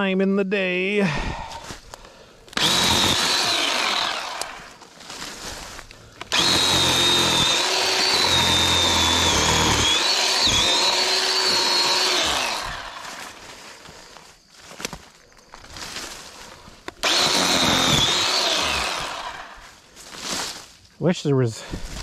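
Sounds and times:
chainsaw cutting brush: 2.6s - 14.2s, 16.1s - 20.6s.

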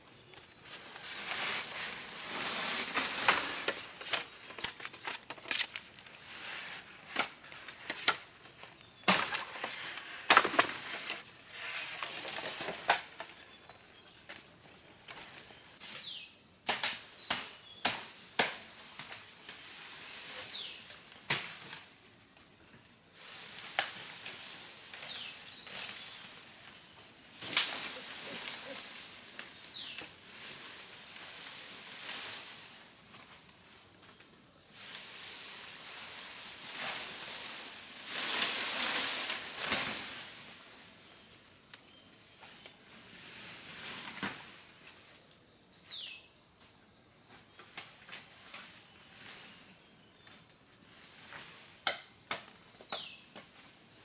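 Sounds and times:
high insect hum: 0.0s - 54.0s
leaves rustling: 0.0s - 54.0s
twigs snapping: 3.2s - 6.2s.

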